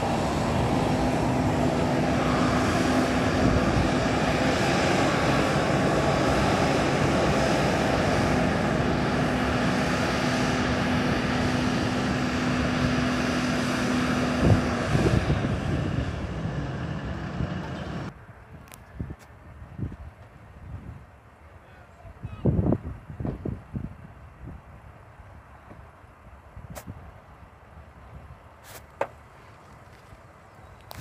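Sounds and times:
jet engines idling: 0:00.0 - 0:18.1.

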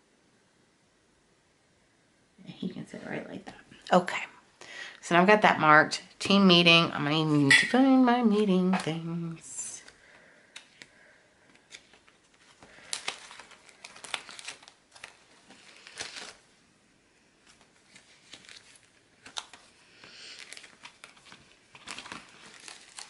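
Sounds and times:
sticker sheets crinkling: 0:08.3 - 0:16.5, 0:17.4 - 0:23.0.

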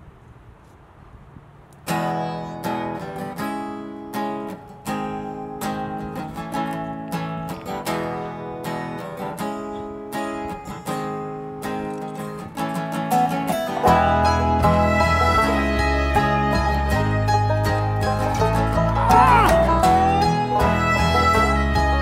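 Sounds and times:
acoustic guitar strumming chords: 0:01.9 - 0:22.0.

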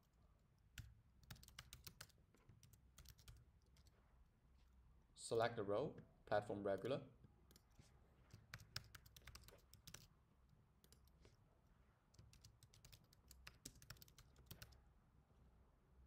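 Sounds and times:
typing on keyboard: 0:00.8 - 0:03.9, 0:07.5 - 0:10.1, 0:10.8 - 0:11.2, 0:12.2 - 0:14.8.

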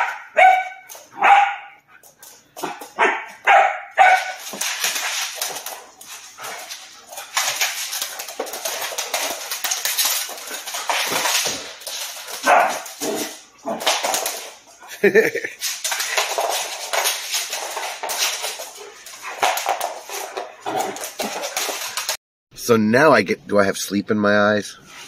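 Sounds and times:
dogs barking: 0:00.0 - 0:02.0, 0:02.6 - 0:04.5, 0:12.4 - 0:13.9
dogs scuffling: 0:00.0 - 0:22.2.

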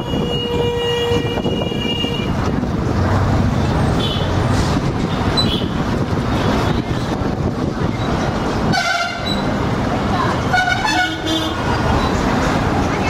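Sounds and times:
vehicle horn tone: 0:00.0 - 0:02.4, 0:08.7 - 0:09.4, 0:10.5 - 0:11.6
road rumble from moving vehicle: 0:00.0 - 0:13.0.

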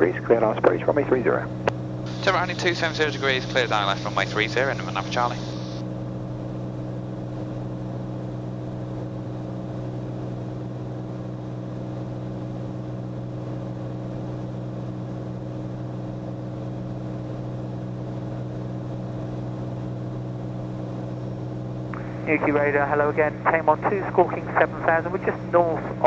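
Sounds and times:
aircraft engine and propeller drone: 0:00.0 - 0:26.0.

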